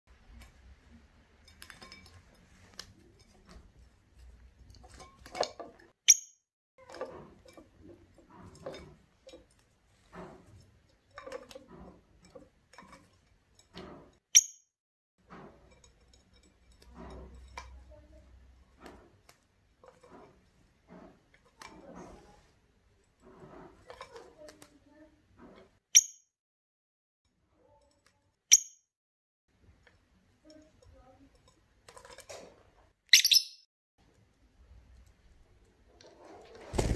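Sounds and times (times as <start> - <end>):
sharp high bird chirps: 33.2 - 33.7.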